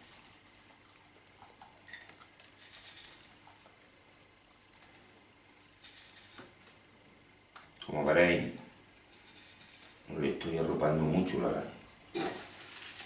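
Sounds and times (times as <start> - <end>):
soil grains rattling: 0.0 - 6.9, 7.9 - 11.4, 12.4 - 13.0
grains spilling: 2.4 - 3.4, 9.1 - 10.2, 12.4 - 13.0.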